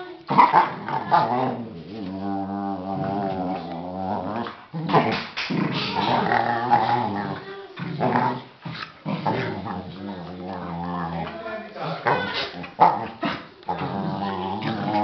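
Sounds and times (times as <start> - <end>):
dogs growling playfully: 0.2 - 11.4, 12.0 - 15.0.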